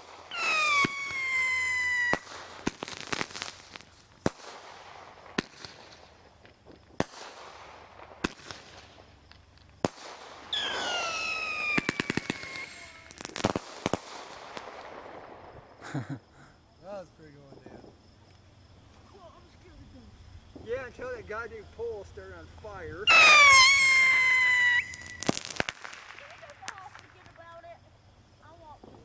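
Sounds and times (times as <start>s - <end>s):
firework whistles falling in pitch: 0.0s - 3.9s, 9.9s - 14.8s, 23.1s - 27.1s
crackling pops: 0.0s - 15.7s, 17.4s - 19.2s, 23.1s - 27.8s
firework bangs: 0.0s - 16.4s, 23.0s - 27.8s.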